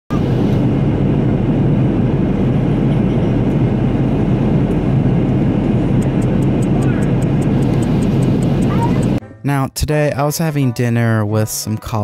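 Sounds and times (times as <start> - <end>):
jet airliner cabin rumble: 0.1 - 9.2.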